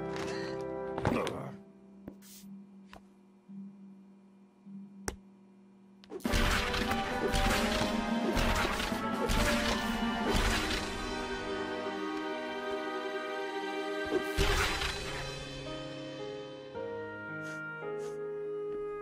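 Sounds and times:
low steady hum: 1.1 - 7.2
loud busy music with hard hits: 6.3 - 11.4.

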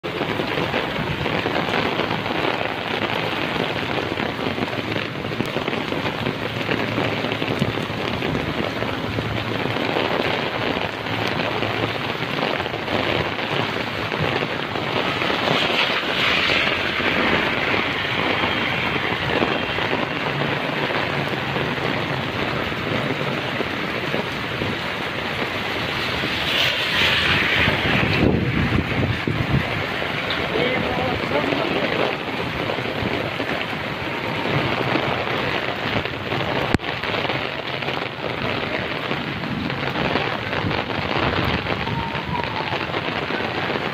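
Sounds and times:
heavy rain on pavement: 0.0 - 43.9.

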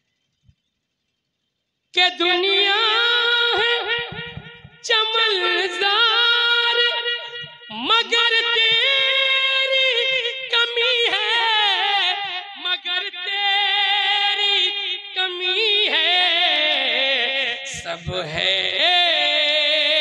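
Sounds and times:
man singing melismatic notes: 2.0 - 11.9.

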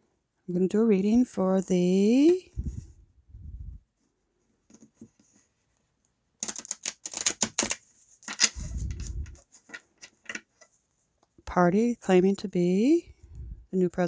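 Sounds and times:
cards riffle-shuffled: 6.4 - 9.8.

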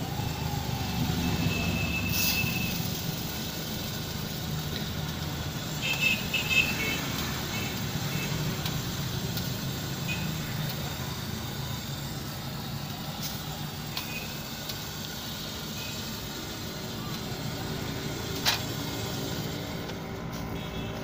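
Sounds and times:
food stall background hum: 0.0 - 21.0
faint clicks at griddle: 4.7 - 5.3, 8.6 - 9.6, 13.2 - 14.9, 18.3 - 18.8.

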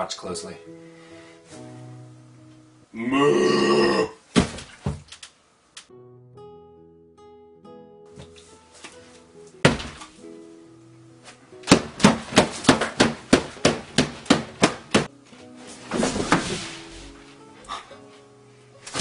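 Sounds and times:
acoustic guitar music: 0.0 - 3.0, 5.9 - 19.0
hands smacking a plate of food: 11.6 - 15.1.

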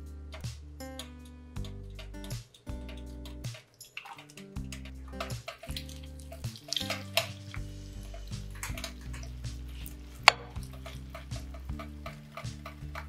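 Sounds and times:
background music held notes: 0.0 - 13.0
spatula scraping wet potato: 3.3 - 13.0.

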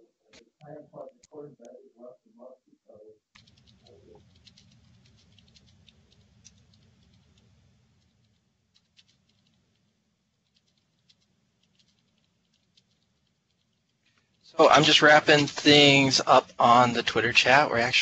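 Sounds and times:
keyboard typing: 3.4 - 13.8.

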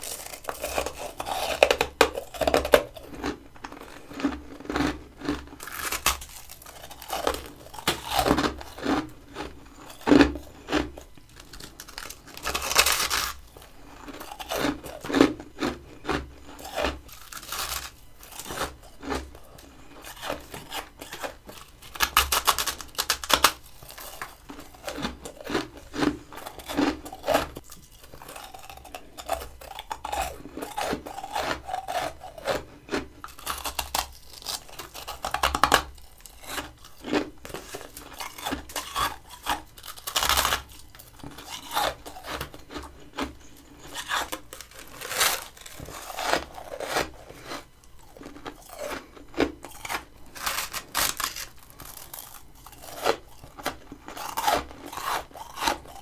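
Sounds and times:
chewing crunchy frost: 0.0 - 56.0.

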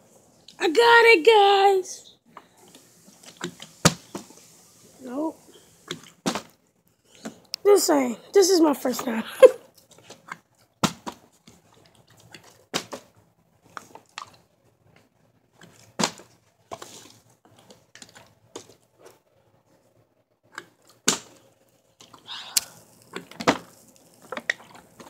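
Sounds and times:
plastic bottles landing on carpet: 16.0 - 16.9.

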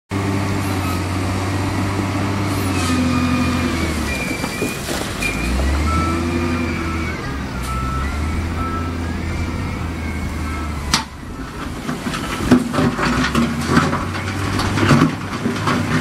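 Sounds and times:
diesel engine running under load: 0.1 - 16.0.

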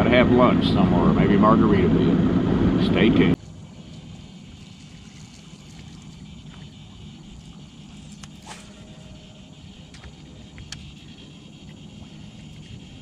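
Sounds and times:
low rumble: 0.0 - 5.2
high insect drone: 3.0 - 13.0.

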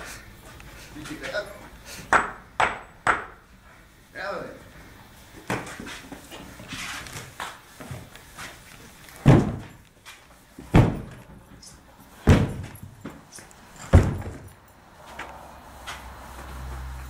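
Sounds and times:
heavy blows smashing armchair: 9.2 - 9.8, 10.7 - 11.2, 12.2 - 12.9, 13.9 - 14.5.

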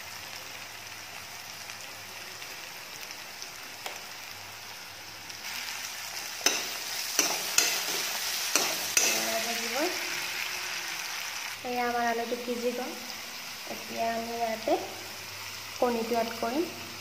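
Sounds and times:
vegetables sizzling in oil: 0.0 - 17.0
metal spoon knocking against pan: 6.4 - 9.3.

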